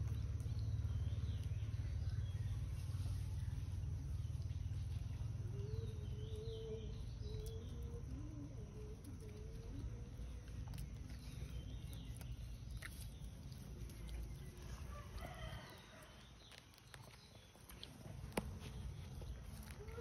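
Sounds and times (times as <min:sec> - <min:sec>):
faint animal calls: 0:19.1 - 0:20.0.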